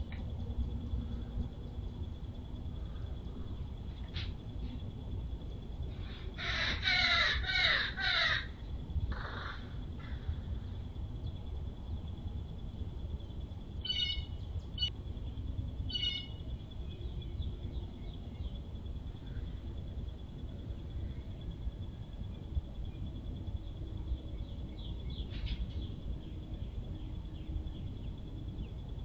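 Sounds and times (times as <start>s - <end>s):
crow cawing: 6.4s - 8.6s.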